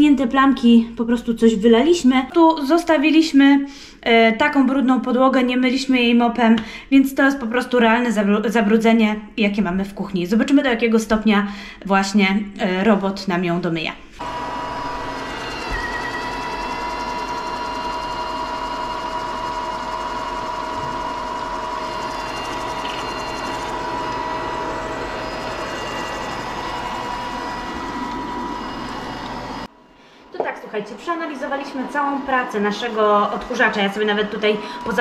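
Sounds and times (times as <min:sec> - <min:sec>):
robot vacuum motor whining: 0:14.2 - 0:29.7, 0:31.4 - 0:35.0.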